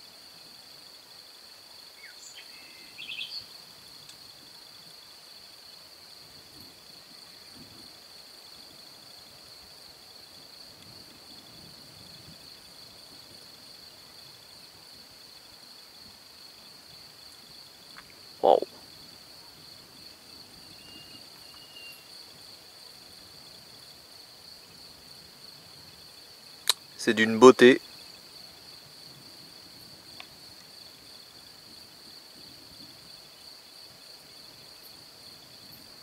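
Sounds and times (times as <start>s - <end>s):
crickets chirring: 0.0s - 36.0s
short loud call: 18.4s - 18.7s.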